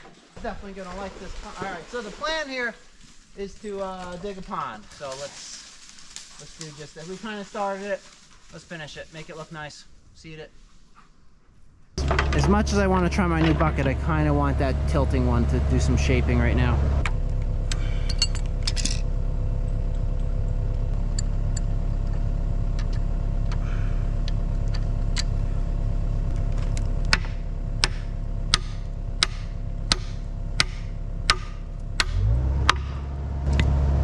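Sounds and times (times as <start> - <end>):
excavator diesel engine: 12.0 - 34.0.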